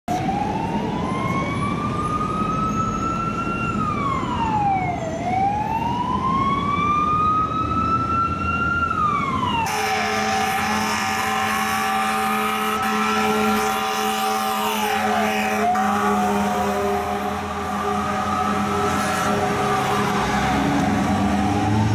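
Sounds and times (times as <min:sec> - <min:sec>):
fire truck siren wailing: 0:00.1 - 0:21.9
truck engine rumble: 0:00.2 - 0:21.9
air horns blasting: 0:09.6 - 0:21.0.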